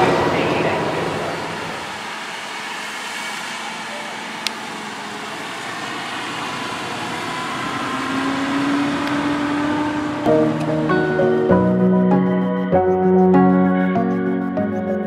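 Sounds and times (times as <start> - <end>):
music: 10.3 - 15.0.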